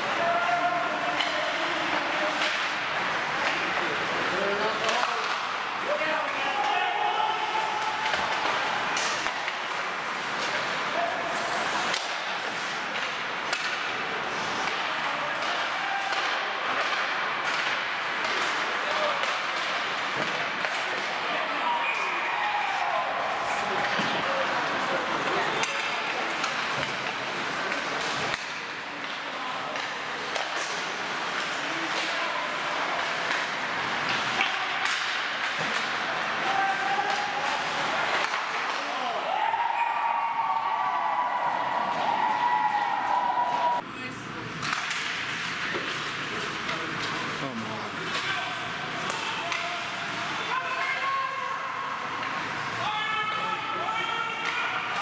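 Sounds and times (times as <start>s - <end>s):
skates scraping on ice: 0.0s - 39.3s
hockey sticks and puck clacking: 0.0s - 43.8s, 44.5s - 55.0s.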